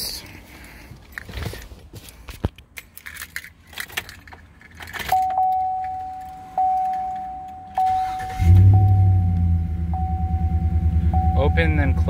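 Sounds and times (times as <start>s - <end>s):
car keys jangling and clicking: 1.0s - 9.0s
dashboard warning chime: 5.1s - 12.0s
engine cranking: 7.8s - 8.9s.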